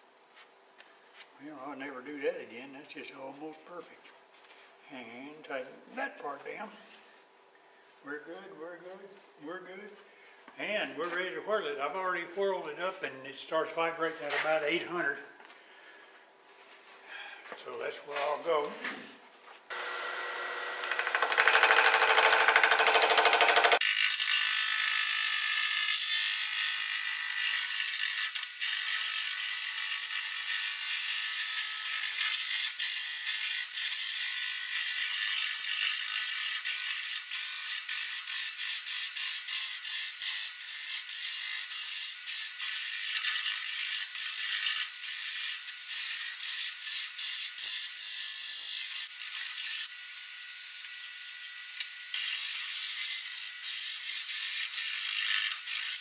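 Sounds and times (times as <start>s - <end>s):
running lathe hum: 19.7s - 24.2s
lathe tool cutting wood: 19.7s - 30.9s.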